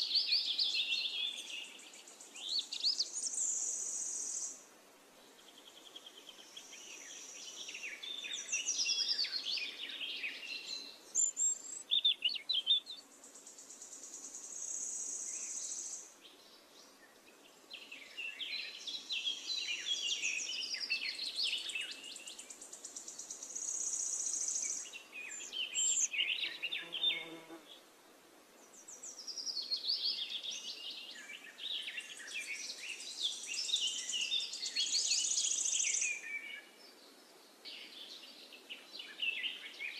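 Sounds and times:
birds chirping and warbling: 0.0s - 4.6s, 5.2s - 27.4s, 28.6s - 39.9s
high steady insect buzz: 25.9s - 27.8s.

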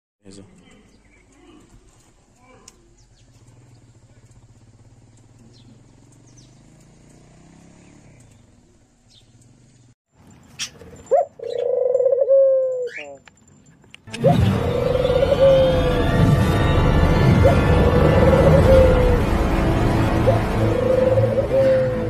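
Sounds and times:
bird chirps: 0.3s - 6.8s, 7.6s - 13.6s
intro music: 14.1s - 22.0s
drawn-out gliding pitched call: 14.2s - 22.0s.

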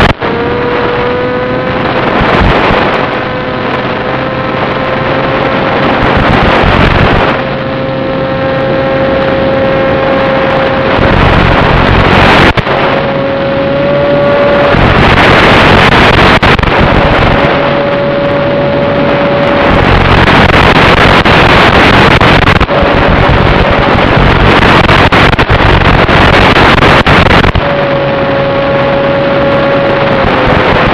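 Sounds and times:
electric motor and propeller tone: 0.0s - 30.9s
wind rush: 0.0s - 30.9s
radio hiss: 20.0s - 22.6s, 24.6s - 27.6s.

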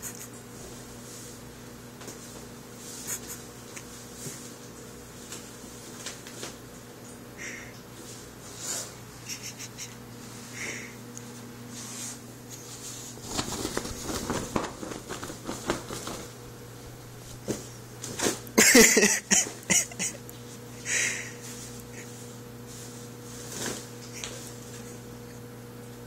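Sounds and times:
faint steady hum: 0.0s - 26.0s
cat scrambling on fabric tent: 13.2s - 16.4s.

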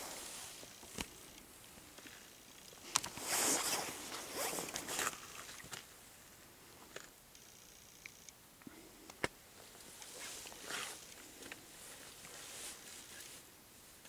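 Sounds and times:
fishing reel clicking: 7.3s - 8.3s.

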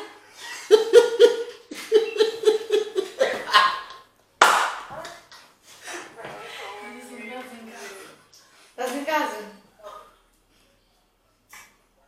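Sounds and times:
woman laughing: 0.4s - 4.0s.

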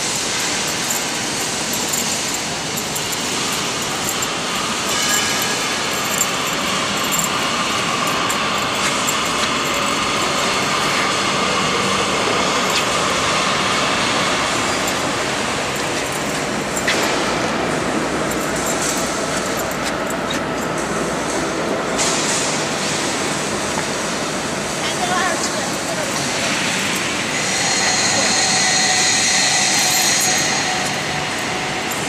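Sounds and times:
industrial machinery noise: 0.0s - 32.0s.

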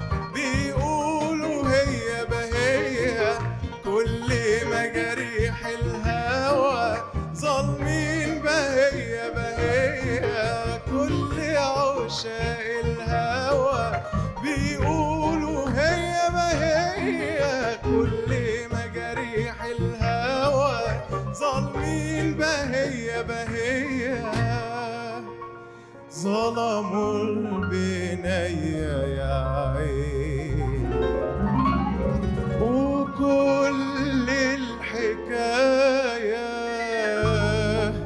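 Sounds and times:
qanun: 0.0s - 25.2s
man singing ornamented melody: 0.0s - 25.4s, 26.1s - 38.0s
keyboard: 0.0s - 38.0s.

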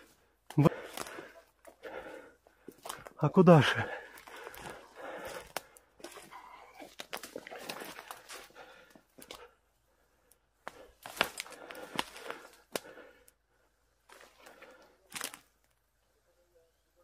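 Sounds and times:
twigs snapping: 4.1s - 9.5s, 10.2s - 13.4s, 14.1s - 15.8s.

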